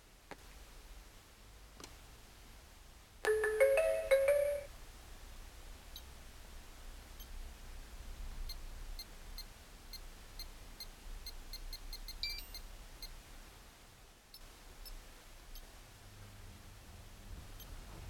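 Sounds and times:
short high key beeps: 11.2 - 13.1
two-pitch beep: 12.2 - 12.6.

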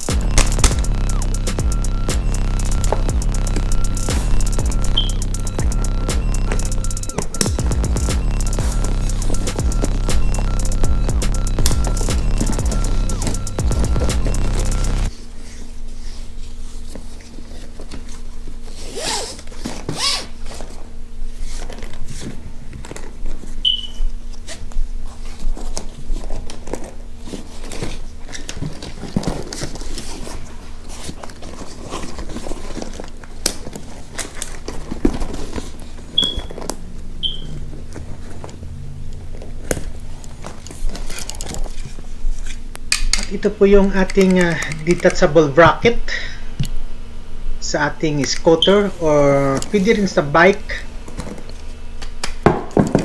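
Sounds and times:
faint steady hum: 0.0 - 53.0
short high chirps: 0.2 - 15.1, 23.6 - 24.0, 37.2 - 37.5
bag rustling and scraping: 15.1 - 23.6, 24.2 - 42.8.

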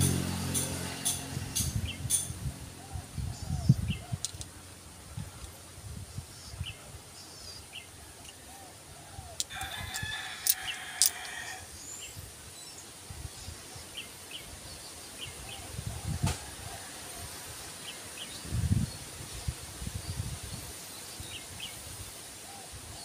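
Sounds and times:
rooster crowing: 9.3 - 11.8.

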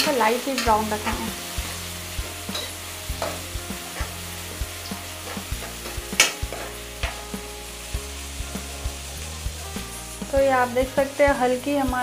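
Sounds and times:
metal spoon scraping pan: 0.0 - 7.3
onions sizzling in oil: 0.0 - 12.0.

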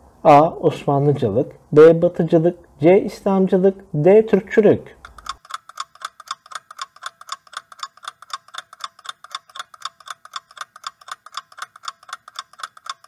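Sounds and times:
clock ticking fast: 5.0 - 13.0.

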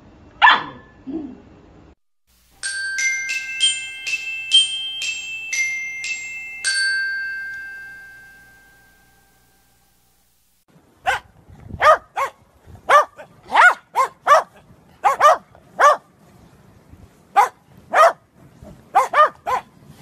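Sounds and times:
puppy yelping: 0.4 - 0.9
glockenspiel melody: 2.5 - 9.9.

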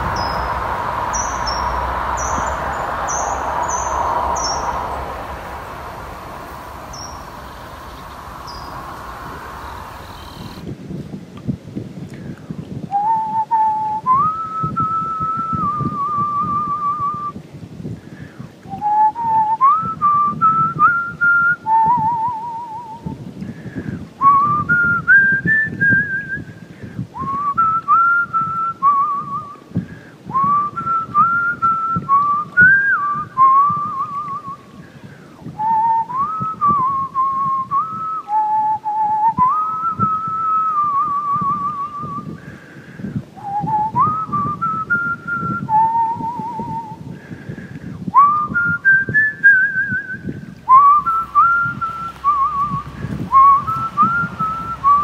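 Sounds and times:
low background noise: 0.0 - 11.7
person whistling a slow melody: 12.9 - 17.4, 18.7 - 23.2, 24.2 - 26.6, 27.2 - 29.6, 30.3 - 34.7, 35.5 - 42.4, 43.4 - 47.0, 48.1 - 55.0.

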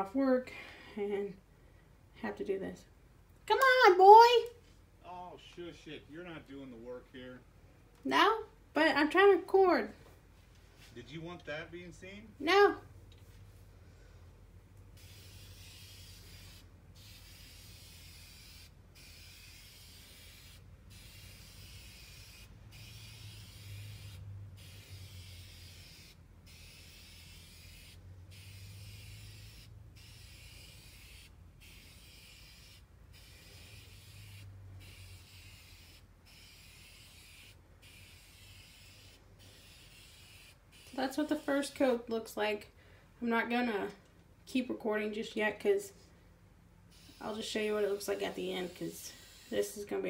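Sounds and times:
spray paint can hissing: 15.0 - 41.7, 46.9 - 49.8.

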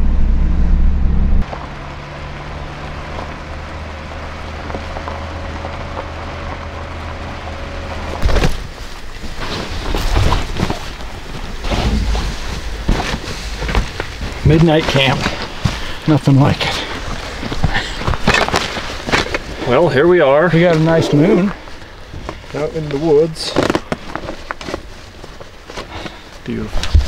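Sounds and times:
faint whine: 0.0 - 2.3
vehicle engine droning: 0.0 - 9.2
rustling: 7.6 - 27.0.

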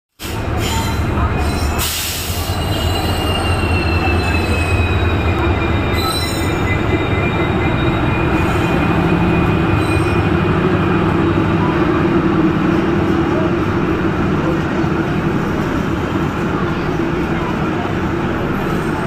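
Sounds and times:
train rumble: 0.1 - 19.0
high metallic squeal: 0.6 - 10.3.

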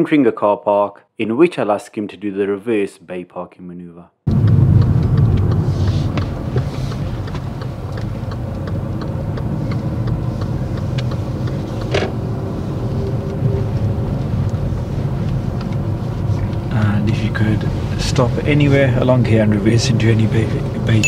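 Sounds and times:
car engine and tyres rumbling: 4.3 - 21.0.

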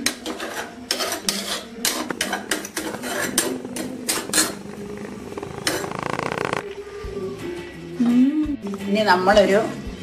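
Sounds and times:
spatula scraping clay pot: 0.0 - 6.6.

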